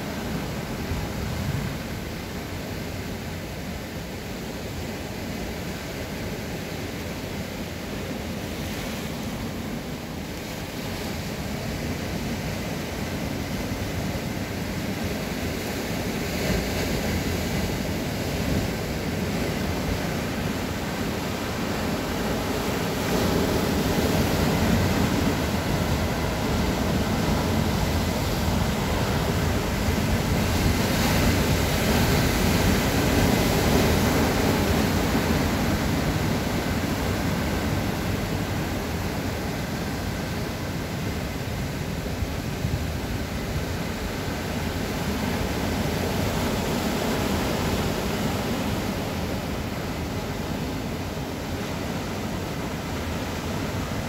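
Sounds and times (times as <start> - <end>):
sea surf breaking on rocks: 4.6 - 54.0.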